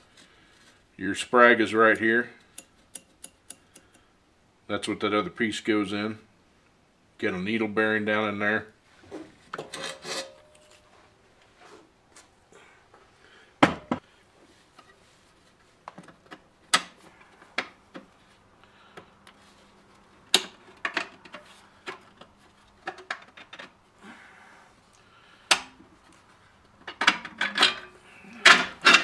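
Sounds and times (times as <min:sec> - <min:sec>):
metal parts clinking and scraping: 0:09.6 - 0:10.9, 0:26.8 - 0:29.0.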